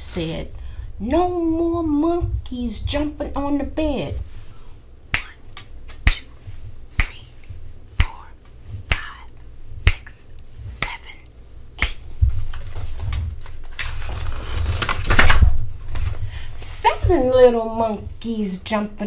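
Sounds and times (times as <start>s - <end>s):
finger snaps: 5.1s - 12.1s.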